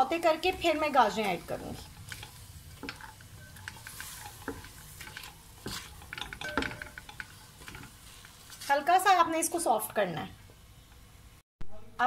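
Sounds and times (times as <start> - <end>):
vegetables sizzling in oil: 0.0 - 11.4
spatula scraping pot: 0.2 - 9.0.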